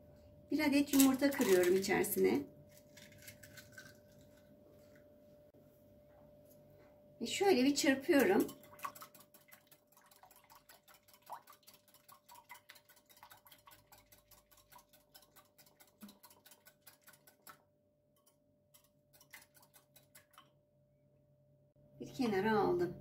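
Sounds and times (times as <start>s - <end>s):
whisk clicking against glass bowl: 8.1s - 17.6s, 18.2s - 20.5s.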